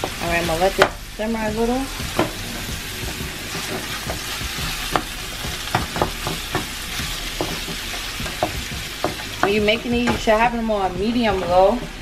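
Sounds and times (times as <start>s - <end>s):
meat sizzling in a frying pan: 0.0s - 12.0s
spatula scraping a pan: 1.9s - 10.5s
spatula knocking against pan: 3.0s - 10.4s.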